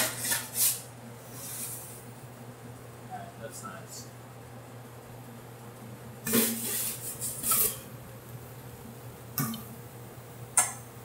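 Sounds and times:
pans and utensils clattering: 6.3s - 7.9s.

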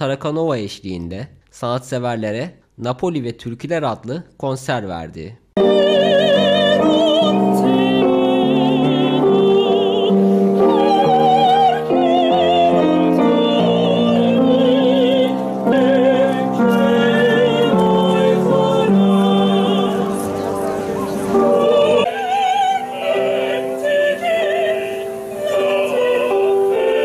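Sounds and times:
opera chorus singing: 5.6s - 27.0s
piano accompaniment: 5.6s - 27.0s.

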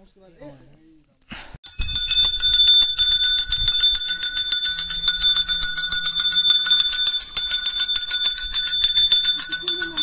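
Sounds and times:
small bells rung rapidly: 1.6s - 10.0s.

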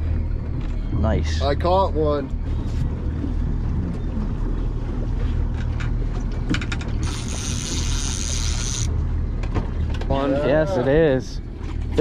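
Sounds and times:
boat motor humming: 0.0s - 12.0s
fishing reel clicking and whirring: 6.6s - 8.9s
high hissing whir of reel: 7.0s - 8.9s.

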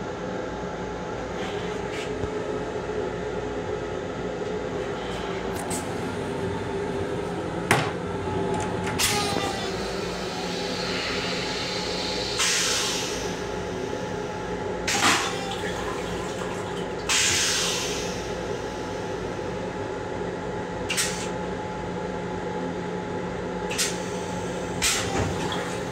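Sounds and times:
train hum: 0.0s - 25.9s
toilet flushing hiss: 9.0s - 19.6s, 23.7s - 25.9s.

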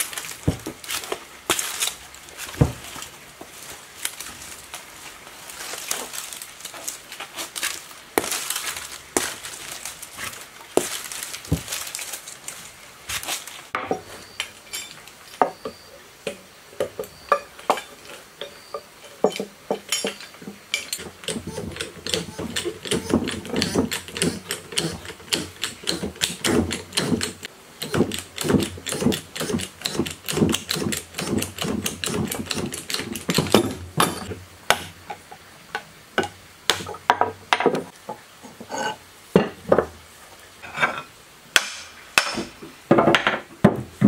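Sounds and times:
gear puller wrench clicking: 21.0s - 33.3s.

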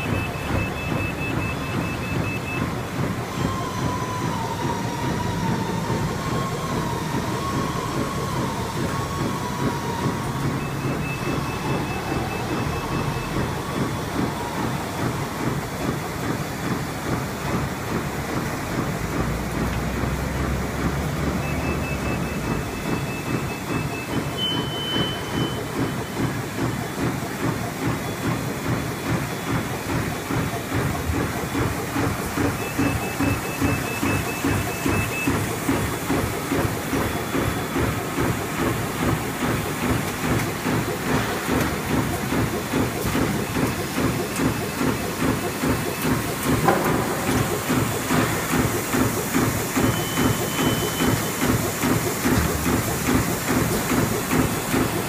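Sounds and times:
bag-making machine cycling: 0.0s - 55.0s
hiss: 47.3s - 55.0s.

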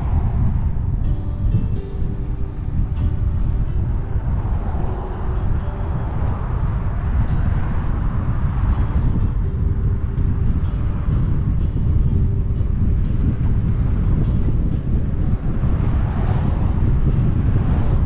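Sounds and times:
car passing by: 0.0s - 1.0s, 1.6s - 18.0s
wind noise on microphone: 0.0s - 18.0s.

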